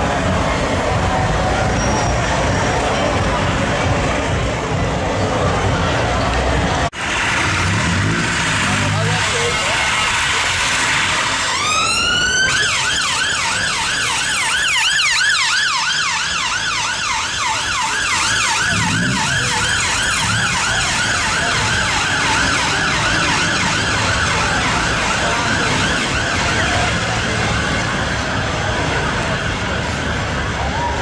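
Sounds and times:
traffic noise: 0.0 - 31.0
ambulance siren wailing and yelping: 10.2 - 31.0.

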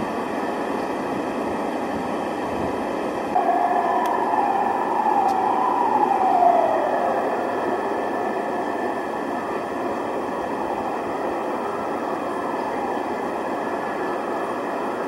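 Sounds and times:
city street noise: 0.0 - 15.0
emergency siren wailing: 3.3 - 15.0.

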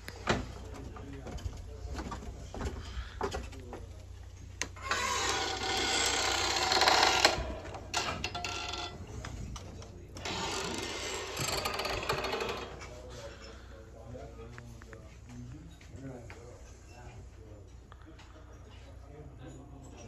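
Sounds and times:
screen door scraping open: 4.7 - 9.2, 10.2 - 12.8.

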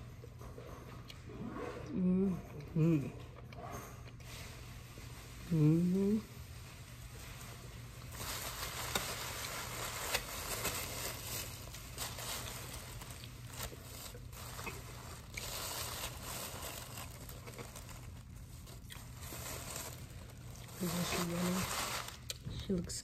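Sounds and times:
packaging crinkling: 7.2 - 22.6.

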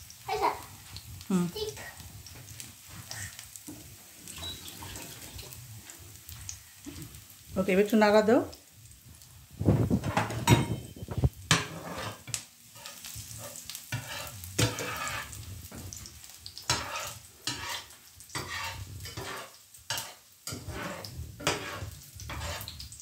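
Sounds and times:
garlic sizzling in oil: 0.0 - 23.0
spatula scraping pan: 2.2 - 7.2, 9.8 - 23.0.

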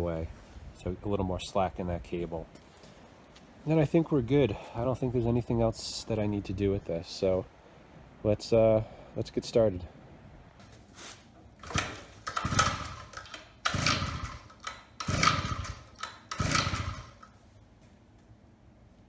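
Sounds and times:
recoil starter pulls cranking engine: 11.6 - 17.4.

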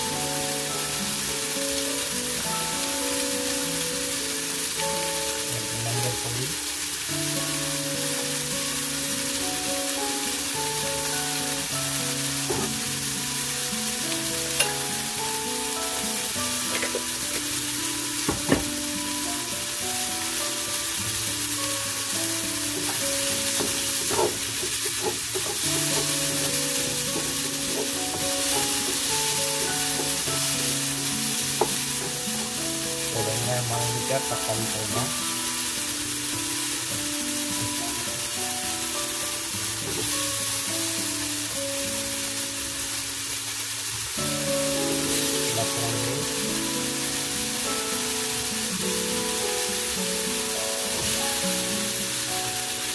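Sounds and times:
melody: 0.0 - 43.1, 44.1 - 52.9
vegetables sizzling in oil: 0.0 - 52.9
wooden spatula knocking on pan: 12.5 - 12.8, 16.7 - 17.1, 18.3 - 18.7, 22.8 - 30.2.

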